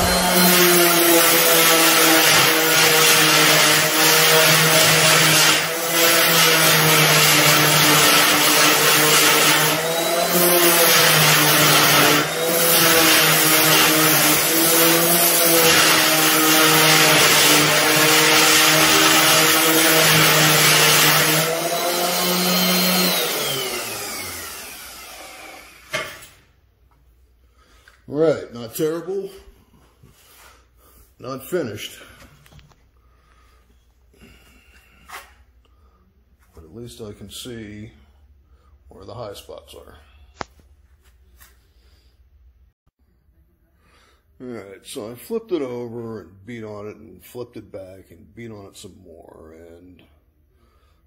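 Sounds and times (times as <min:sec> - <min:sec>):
orbital sander on metal: 0:00.0 - 0:25.8
sander winding down: 0:00.0 - 0:26.0.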